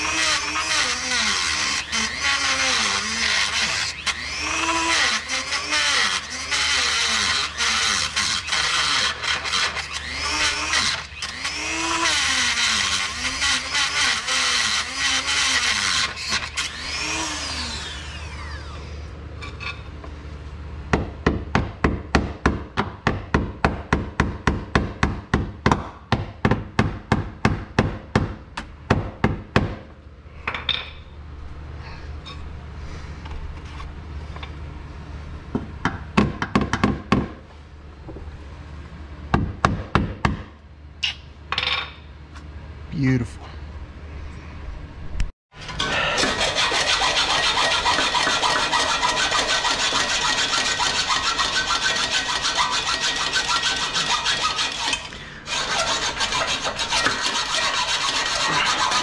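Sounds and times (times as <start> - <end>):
rotary tool grinding metal: 0.0 - 19.8, 45.6 - 59.0.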